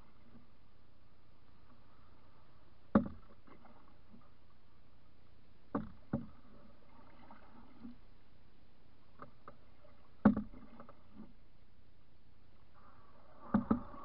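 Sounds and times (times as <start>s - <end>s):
faint water sounds: 0.0s - 14.0s
paddle knocking against canoe: 2.9s - 3.7s, 5.7s - 6.4s, 10.2s - 11.3s.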